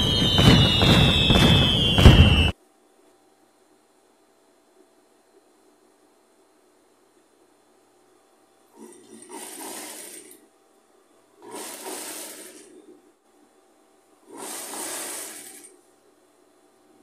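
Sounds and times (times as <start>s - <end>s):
sewing machine stitching: 8.8s - 10.4s, 11.4s - 12.7s, 14.3s - 15.7s.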